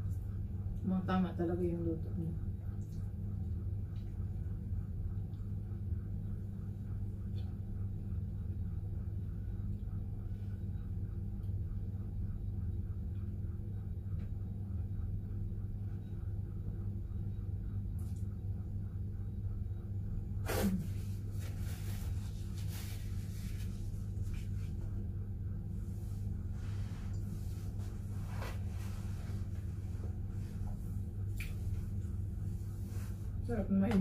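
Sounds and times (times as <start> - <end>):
low electrical hum: 0.0 - 34.0.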